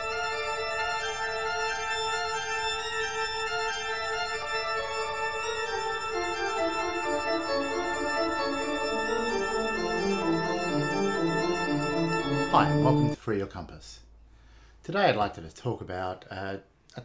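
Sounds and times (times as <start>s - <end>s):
low descending notes: 0.0s - 13.2s
organ-like chords: 0.0s - 13.2s.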